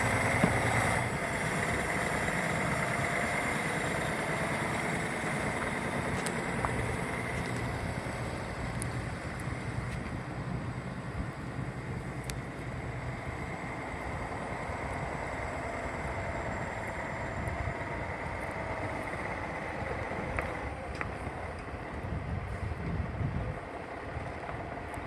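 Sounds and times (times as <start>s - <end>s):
diesel truck engine rumbling: 0.0s - 25.0s.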